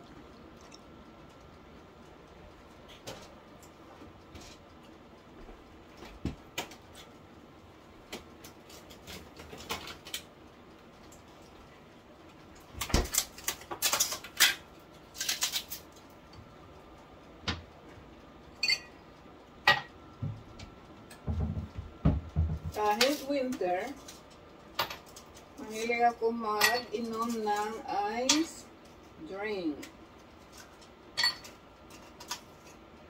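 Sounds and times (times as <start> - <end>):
glass clinking: 18.6 - 19.0, 31.2 - 31.6.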